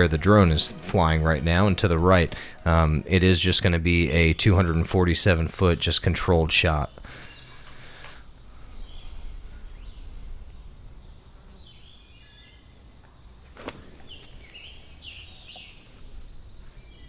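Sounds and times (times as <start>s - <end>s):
steady low rumble: 0.0s - 13.6s, 14.3s - 17.0s
songbirds chirping: 0.0s - 17.0s.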